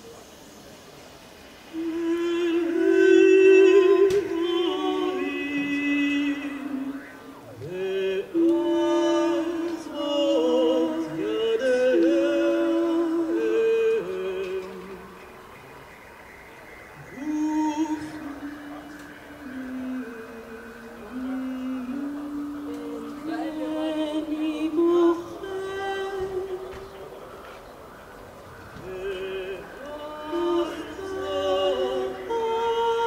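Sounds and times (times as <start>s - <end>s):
woman singing with vibrato: 1.7s - 15.2s, 17.0s - 27.2s, 28.8s - 33.0s.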